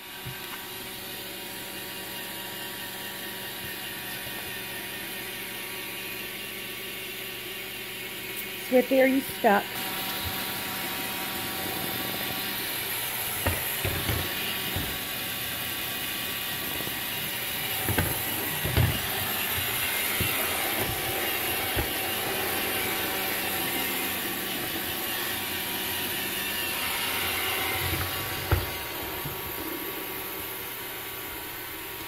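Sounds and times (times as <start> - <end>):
robot vacuum whirring: 7.6 - 32.0
dull thumps: 13.3 - 15.2, 17.0 - 23.1, 27.6 - 29.6.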